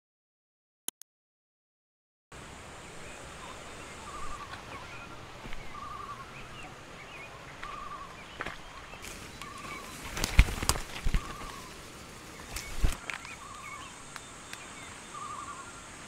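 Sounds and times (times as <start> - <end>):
bird wavering call: 3.4 - 10.2, 11.0 - 11.8, 12.4 - 15.9
footsteps on dry leaves: 7.5 - 13.8.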